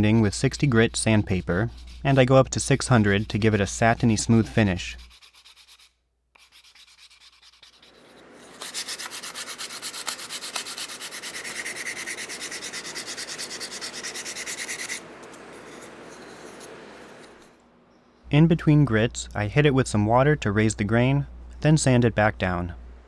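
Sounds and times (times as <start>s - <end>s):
sandpaper scrubbing wood: 0.0s - 17.2s.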